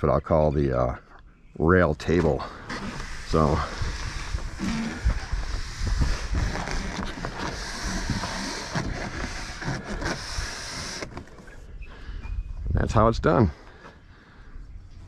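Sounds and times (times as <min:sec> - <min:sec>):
kayak hull scraping on rails: 0:02.1 - 0:11.7
rustling: 0:02.5 - 0:11.7.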